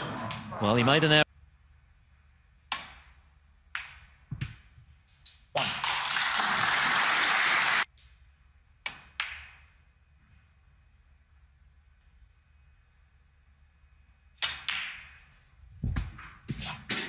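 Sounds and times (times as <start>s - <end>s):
crowd applause: 5.6s - 7.9s.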